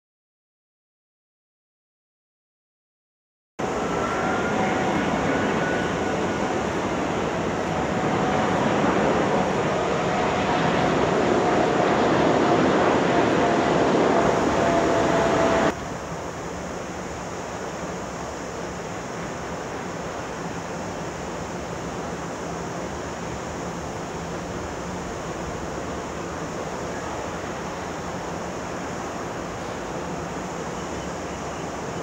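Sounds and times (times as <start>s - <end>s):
outdoor rushing noise: 3.6s - 16.3s
jet engine whine: 3.6s - 32.0s.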